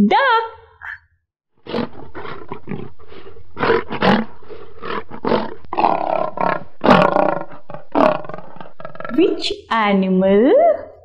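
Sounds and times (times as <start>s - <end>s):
lion roaring: 1.6s - 9.2s.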